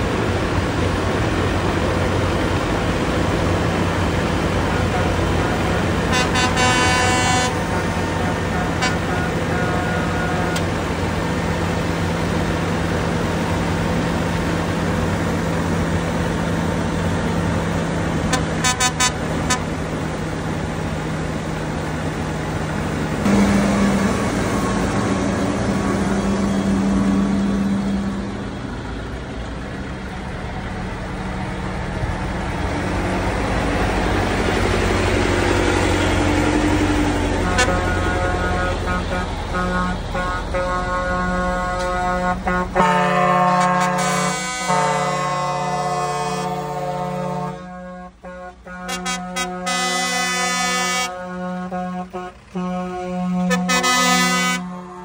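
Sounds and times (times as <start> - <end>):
diesel engines idling: 0.0 - 55.0
truck pulling away: 0.0 - 55.0
vehicle horn tooting: 4.8 - 10.7, 18.3 - 19.7, 37.4 - 55.0.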